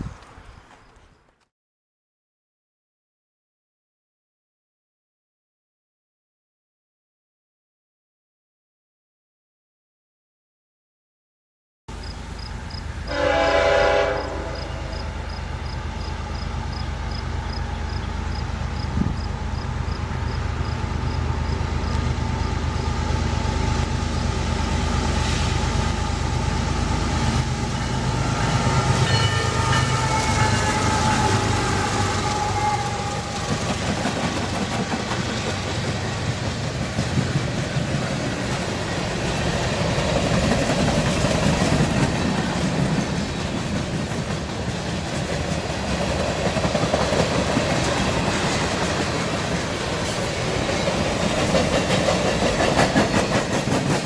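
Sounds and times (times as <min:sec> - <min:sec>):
diesel locomotives running: 0:11.9 - 0:54.0
freight cars rumbling on rails: 0:11.9 - 0:54.0.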